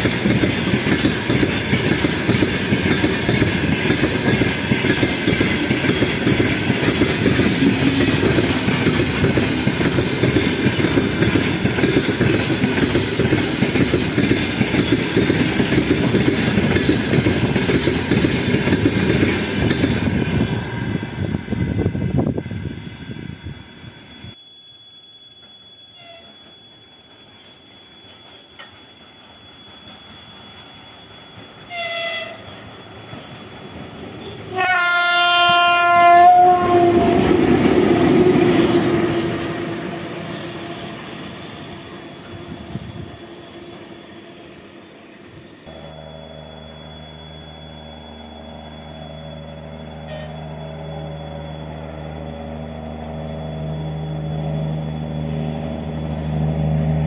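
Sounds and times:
train bogies rumbling: 0.0 - 24.4, 25.4 - 57.0
distant railcar hum: 0.0 - 57.0
locomotive horn blasts: 26.0 - 26.4, 31.7 - 32.5, 34.5 - 37.8, 47.8 - 55.9.

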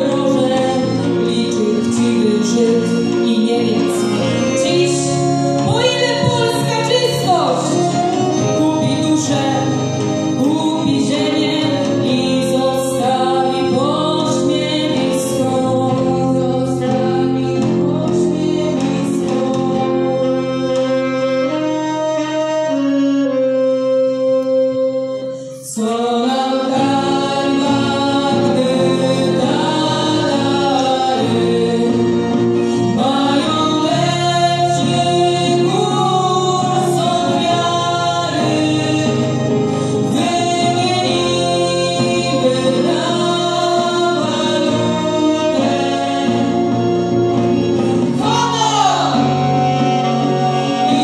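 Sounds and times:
accordion: 0.0 - 51.0
acoustic guitar: 0.0 - 51.0
group singing: 7.9 - 20.4, 25.7 - 51.0
brass horn: 16.5 - 25.7, 26.3 - 51.0.

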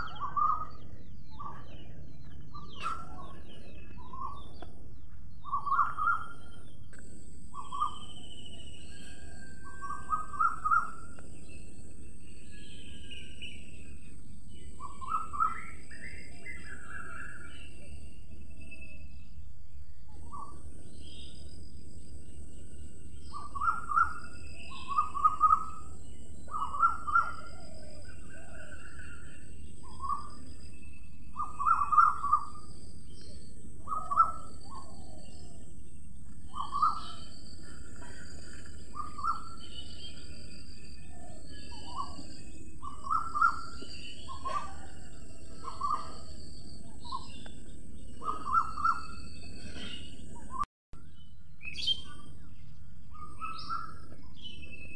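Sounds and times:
birds chirping: 0.0 - 54.9.

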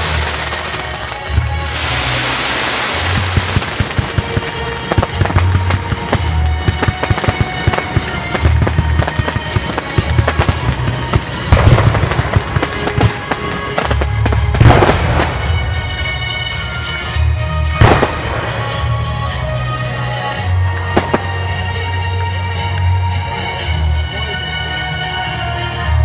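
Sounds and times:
fireworks bangs and crackling: 0.0 - 23.8.

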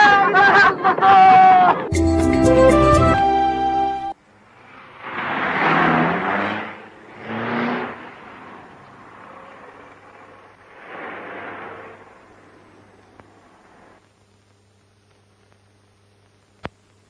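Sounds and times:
road vehicles passing by: 4.4 - 14.0.

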